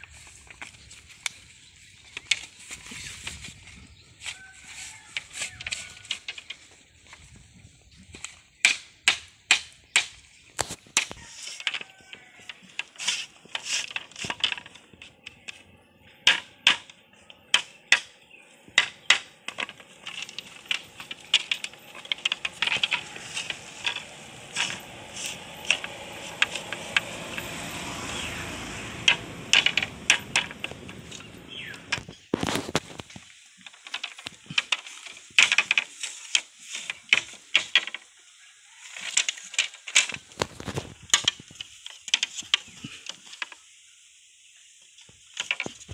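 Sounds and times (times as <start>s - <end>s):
hand tool knocking on bamboo: 18.8s - 32.1s.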